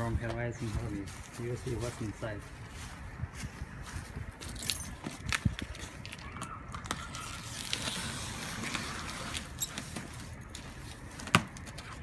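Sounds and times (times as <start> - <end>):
cutter scraping packing tape: 6.8 - 10.6.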